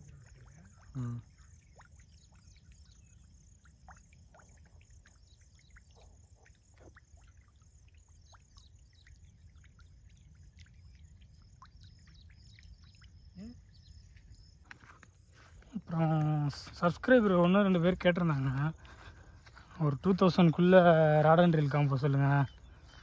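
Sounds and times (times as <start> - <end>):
small birds chirping: 0.0 - 23.0.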